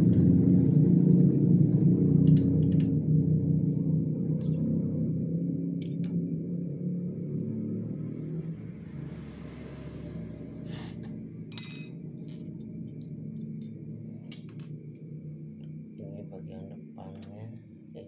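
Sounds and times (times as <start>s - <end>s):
steady low hum: 0.0s - 18.0s
small metal parts clinking: 11.5s - 13.8s.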